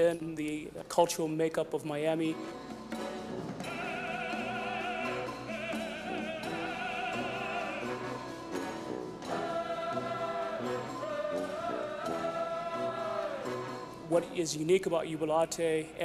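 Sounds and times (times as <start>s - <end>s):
man singing operatically: 3.7s - 8.2s, 9.4s - 16.0s.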